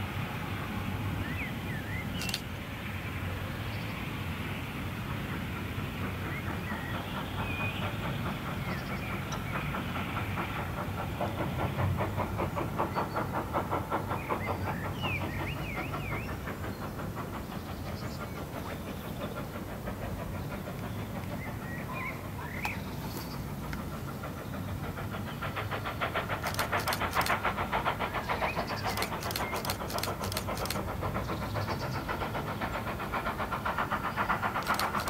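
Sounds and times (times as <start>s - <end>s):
steam locomotive exhaust beats: 0.0s - 35.0s
train rumble: 0.0s - 35.0s.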